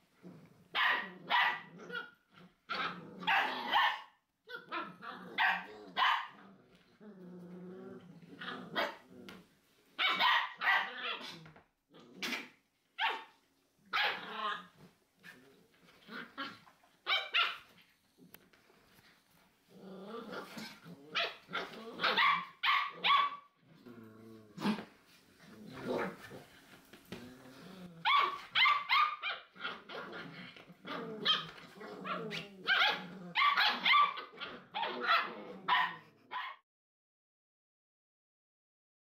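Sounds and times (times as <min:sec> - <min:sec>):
puppy growling: 0:00.1 - 0:09.5, 0:10.8 - 0:12.6, 0:14.0 - 0:17.2, 0:18.2 - 0:36.4
puppies yapping: 0:31.2 - 0:36.6.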